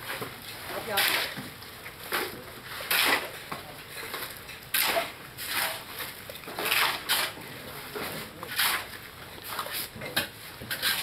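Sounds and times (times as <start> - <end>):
shovels scraping cement and gravel: 0.0 - 11.0.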